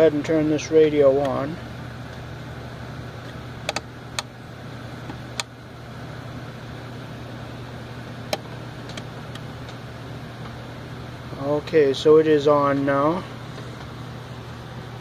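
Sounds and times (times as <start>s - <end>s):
steady low hum: 0.0s - 15.0s
radio control knob clicks: 3.2s - 4.3s, 8.3s - 9.8s.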